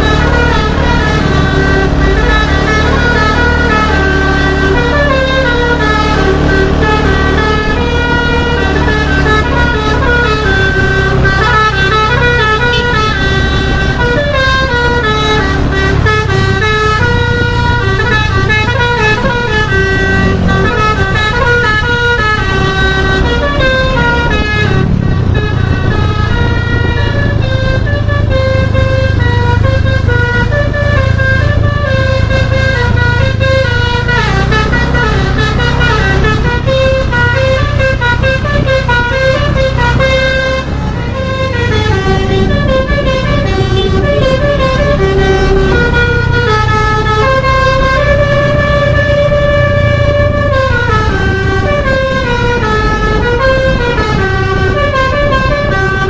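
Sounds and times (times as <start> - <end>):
bus engine running: 0.0 - 56.0
multi-tone bus horn melody: 0.0 - 56.0.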